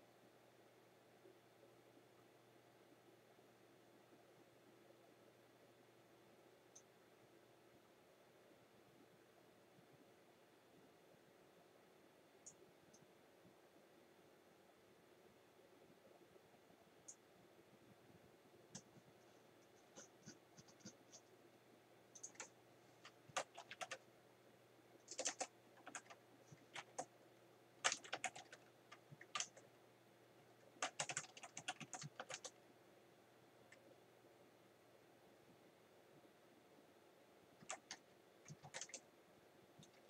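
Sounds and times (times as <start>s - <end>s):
faint keyboard typing: 12.4s - 13.1s, 17.0s - 17.3s, 18.1s - 21.4s, 22.1s - 24.1s, 25.0s - 27.2s, 27.8s - 29.8s, 30.4s - 32.7s, 37.6s - 39.1s, 39.7s - 40.0s.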